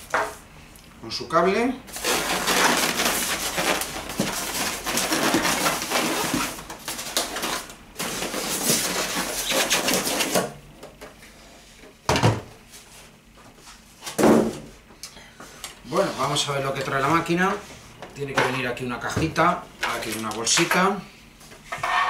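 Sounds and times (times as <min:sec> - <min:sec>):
polystyrene blocks crackling: 0:01.9 - 0:10.4.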